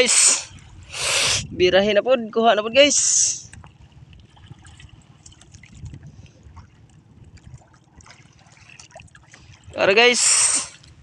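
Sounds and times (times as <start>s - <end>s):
water lapping against boat hull: 0.5s - 1.7s, 2.3s - 11.0s
light ticks and splashes: 3.4s - 9.8s.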